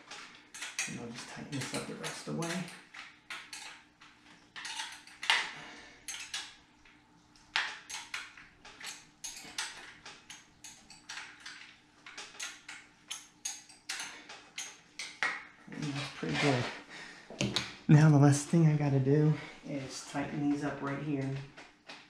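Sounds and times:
hand tool clicking on metal bolts: 0:07.6 - 0:15.2.

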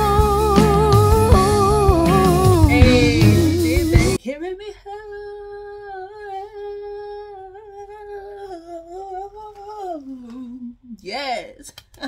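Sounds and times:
woman humming: 0:00.0 - 0:11.0.

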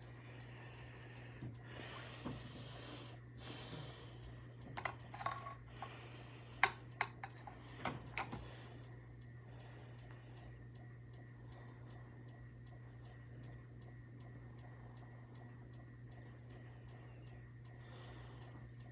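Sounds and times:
person breathing: 0:00.0 - 0:10.7, 0:11.3 - 0:13.6, 0:16.1 - 0:18.9
steady low hum: 0:00.0 - 0:18.9
small sharp clicks and taps: 0:06.6 - 0:08.5.

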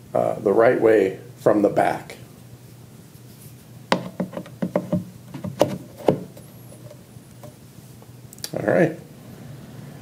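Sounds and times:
hard pieces knocking together: 0:03.9 - 0:07.6.

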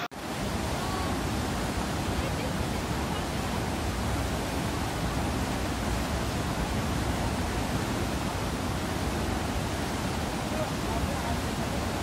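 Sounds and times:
river rushing over rapids: 0:00.0 - 0:12.0.

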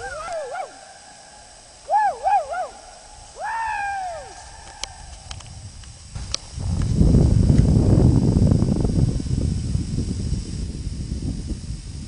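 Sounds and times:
person whooping: 0:00.0 - 0:01.2, 0:01.8 - 0:05.2
steady faint hiss: 0:00.0 - 0:12.0.

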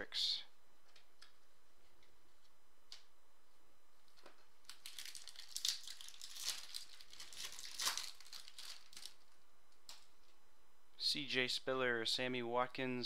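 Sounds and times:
foil wrapper tearing and crinkling: 0:04.6 - 0:09.3.

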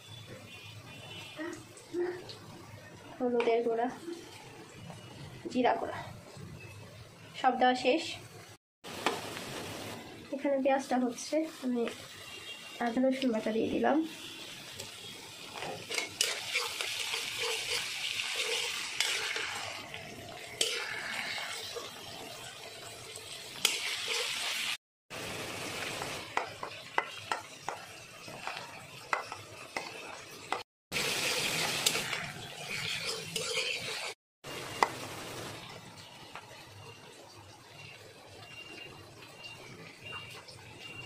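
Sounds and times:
okra rustling in a bowl: 0:15.6 - 0:19.8.

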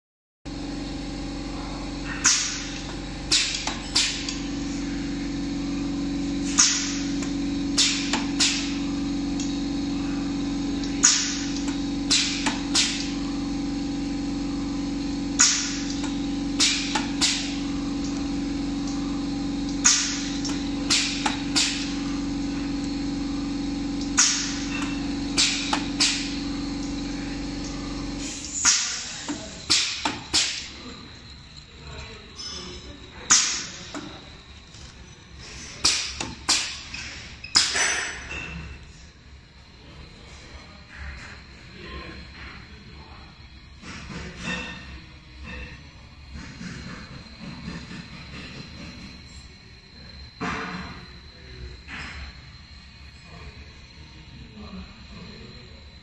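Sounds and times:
machine humming: 0:00.5 - 0:37.4.

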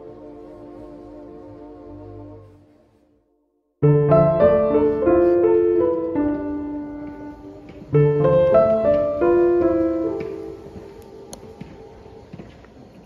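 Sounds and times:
solo piano music: 0:03.8 - 0:11.3.

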